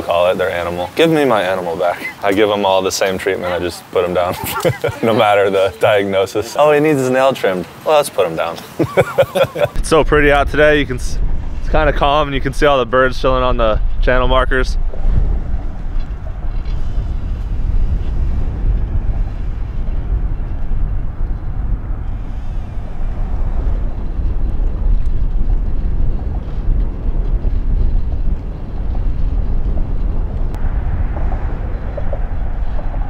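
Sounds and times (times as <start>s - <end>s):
wind buffeting microphone: 0.0s - 33.0s
motorboat engine rumble: 8.6s - 33.0s.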